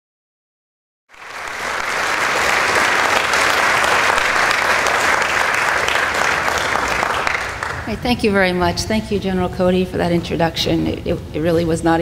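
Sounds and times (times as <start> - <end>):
audience applauding: 1.1 - 8.0.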